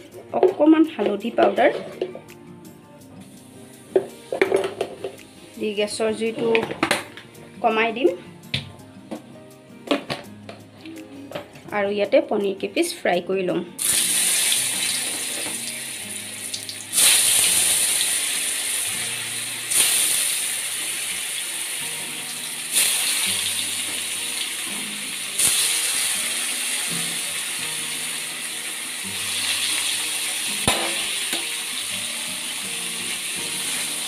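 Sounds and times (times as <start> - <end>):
soft background music: 0.0 - 34.0
cheese cubes sizzling in oil: 13.8 - 34.0.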